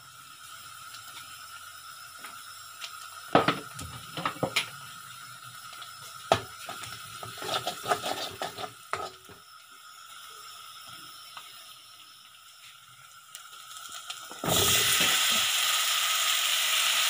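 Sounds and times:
hot oil sizzling: 0.0s - 17.0s
metal spoon scraping a pan: 7.2s - 9.3s.

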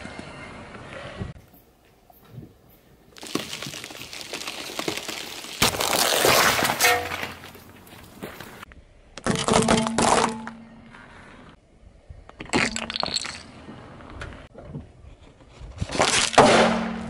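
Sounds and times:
tyre crushing small objects: 3.1s - 8.6s.

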